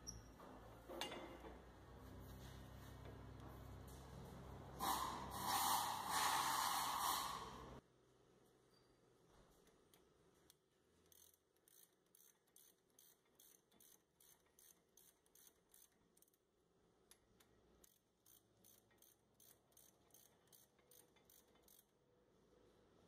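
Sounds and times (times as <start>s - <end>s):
ratchet clicking: 9.9s - 16.4s, 17.1s - 22.0s.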